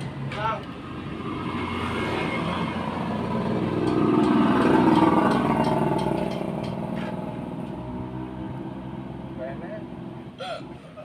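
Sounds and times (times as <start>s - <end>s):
motorcycle passing by: 0.7s - 10.3s.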